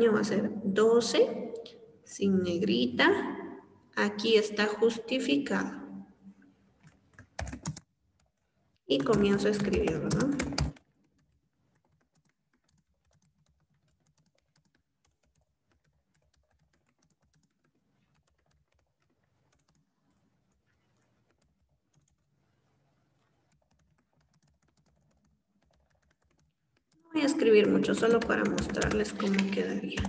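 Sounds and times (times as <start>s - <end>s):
typing on computer keyboard: 6.8s - 22.4s, 23.2s - 30.0s.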